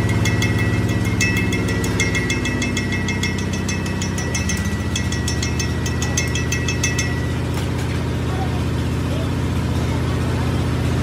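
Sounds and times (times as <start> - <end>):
rapid metallic ticking: 0.0 - 8.4.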